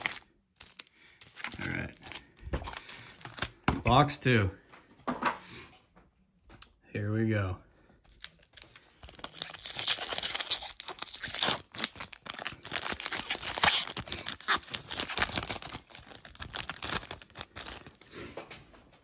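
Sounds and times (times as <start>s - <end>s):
foil wrapper tearing and crinkling: 0.0s - 3.6s, 8.2s - 18.2s.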